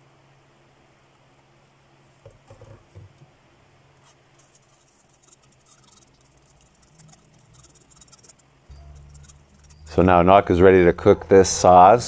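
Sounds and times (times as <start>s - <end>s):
spoon scraping through mesh strainer: 4.5s - 10.2s.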